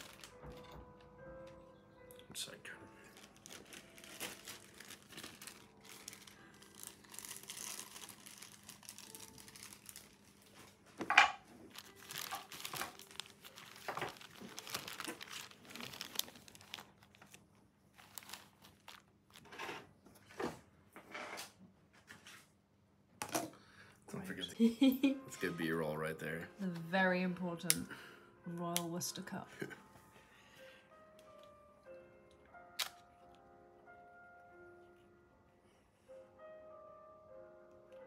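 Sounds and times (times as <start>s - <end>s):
plastic bags crinkling: 0.0s - 1.0s, 3.1s - 10.9s, 11.6s - 19.8s.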